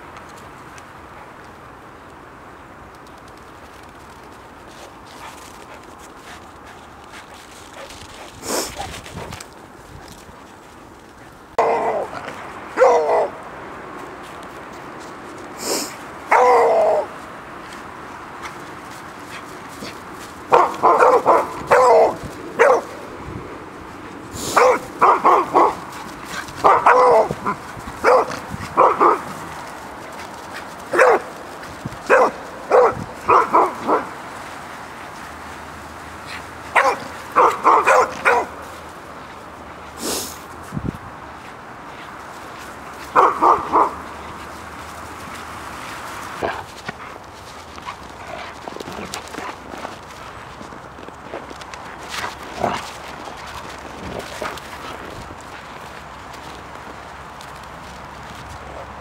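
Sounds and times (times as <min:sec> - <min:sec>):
steady background hiss: 0:00.0 - 0:59.0
dog sniffing in snow: 0:04.7 - 0:09.4, 0:14.2 - 0:16.3, 0:23.9 - 0:40.7
dog barking: 0:11.6 - 0:13.4, 0:16.3 - 0:17.1, 0:20.5 - 0:23.0, 0:24.5 - 0:26.0, 0:26.6 - 0:29.4, 0:30.9 - 0:31.3, 0:32.1 - 0:34.2, 0:36.7 - 0:38.6, 0:43.1 - 0:44.1.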